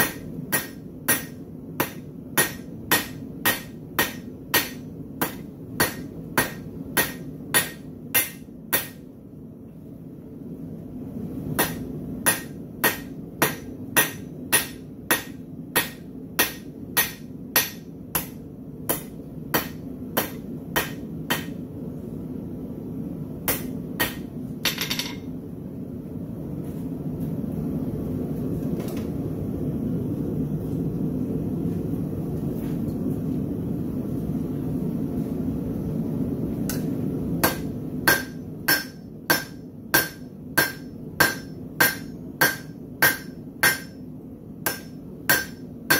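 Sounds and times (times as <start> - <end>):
hammer striking hot steel on anvil: 0.0 - 9.1, 11.5 - 21.6, 23.4 - 25.3, 36.7 - 44.0, 44.6 - 45.9.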